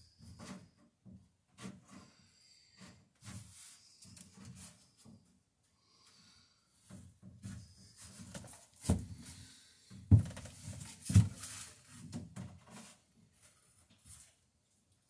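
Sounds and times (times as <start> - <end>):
scraping and shuffling: 2.8 - 5.4, 6.8 - 14.5
knocks on wooden planks: 10.1 - 11.4.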